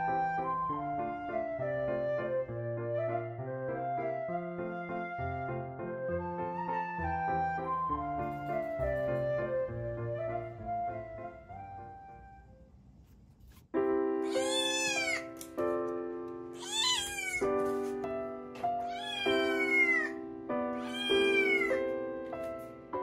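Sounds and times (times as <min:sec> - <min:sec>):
sustained keyboard music: 0:00.0 - 0:12.7
cat meowing: 0:14.2 - 0:15.4, 0:16.6 - 0:17.5, 0:18.8 - 0:20.2, 0:20.8 - 0:21.8.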